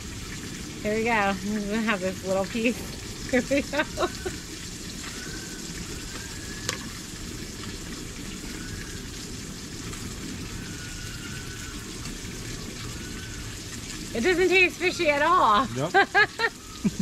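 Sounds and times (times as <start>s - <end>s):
steady hissing noise: 0.0s - 17.0s.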